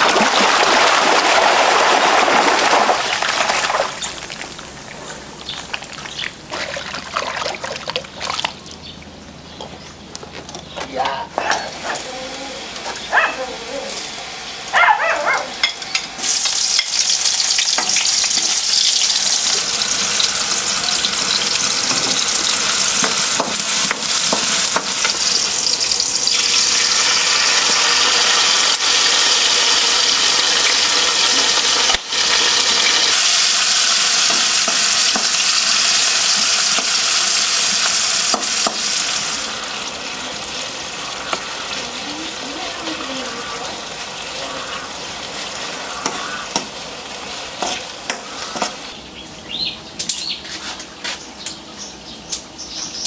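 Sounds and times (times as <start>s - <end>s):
food sizzling in a wok: 11.7s - 14.8s, 15.5s - 49.0s.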